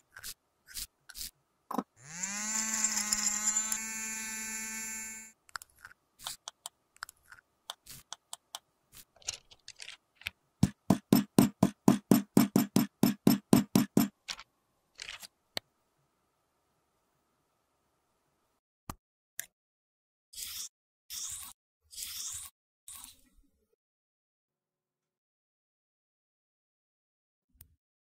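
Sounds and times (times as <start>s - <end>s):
electric grinder motor whine: 2.0s - 5.3s
clicks and taps: 5.5s - 14.4s
fast knocking of a press: 10.6s - 14.2s.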